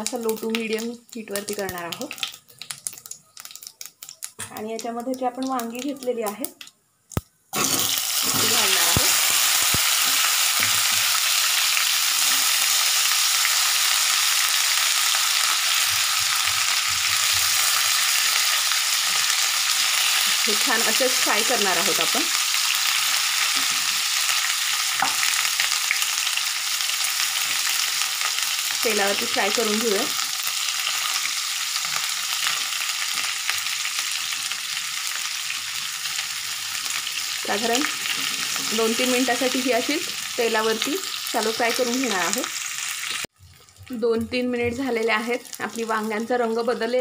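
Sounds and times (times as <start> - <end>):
vegetables sizzling in hot oil: 0.0 - 6.6, 7.5 - 47.0
spatula turning food in pan: 7.6 - 42.4.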